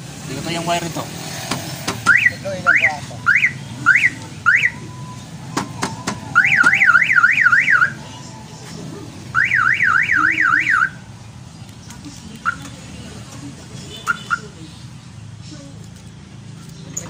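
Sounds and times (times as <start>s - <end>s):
car alarm chirps: 2.0s - 8.1s, 9.3s - 11.0s, 14.0s - 14.6s
car alarm warbling siren: 2.0s - 8.1s, 9.3s - 11.0s.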